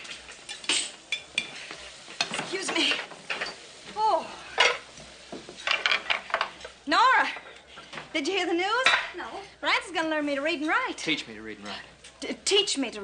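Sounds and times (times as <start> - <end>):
dishes and utensils clattering: 0.0 - 3.7, 4.6 - 8.1
steak sizzling in a frying pan: 0.0 - 13.0.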